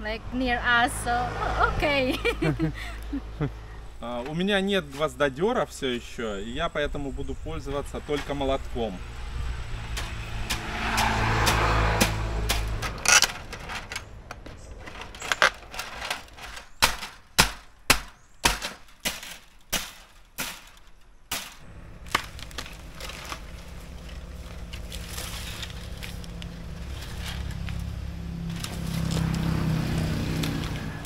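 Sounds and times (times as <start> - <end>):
hammer striking wood and nails: 16.7 - 21.6.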